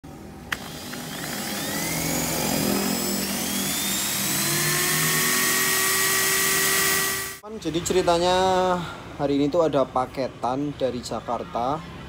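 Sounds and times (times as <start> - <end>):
electric drill whining: 0.5 - 7.4.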